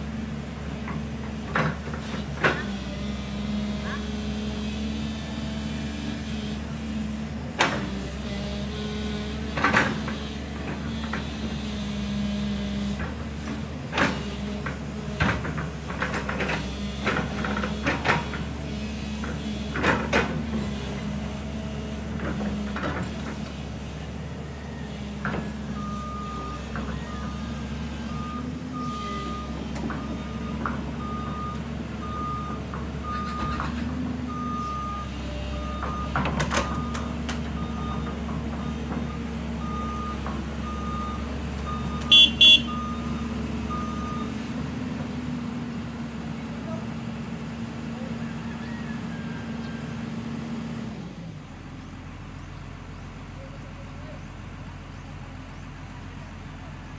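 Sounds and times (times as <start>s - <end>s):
diesel excavator engine running: 0.0s - 56.9s
warning alarm beeping: 41.7s - 44.3s.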